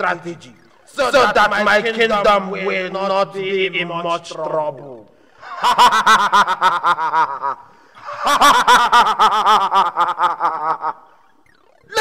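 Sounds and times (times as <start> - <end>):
villain cackling laugh: 5.4 - 11.2.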